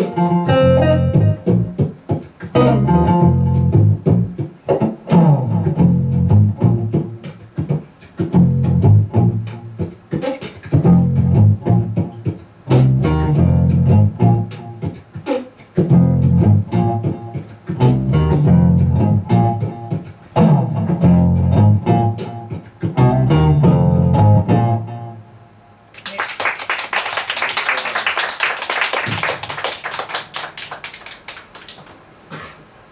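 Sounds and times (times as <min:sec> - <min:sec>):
bass line: 0:00.0 - 0:01.8, 0:02.6 - 0:07.2, 0:08.3 - 0:09.8, 0:10.8 - 0:14.8, 0:15.8 - 0:25.2
jazz guitar playing: 0:00.0 - 0:25.4
audience applause: 0:26.0 - 0:32.0.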